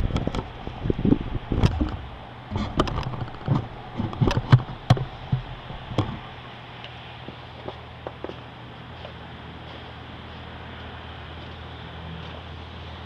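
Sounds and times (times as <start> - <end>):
heavy vehicle engine humming: 0.0 - 13.0
sharp knocks and clatters: 1.6 - 6.3.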